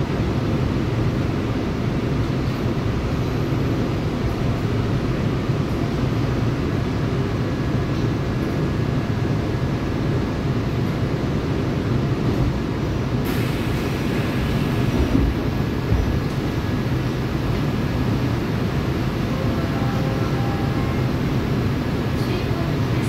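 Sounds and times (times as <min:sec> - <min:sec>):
train wheels rumbling: 0:00.0 - 0:23.0
hiss: 0:13.2 - 0:15.2.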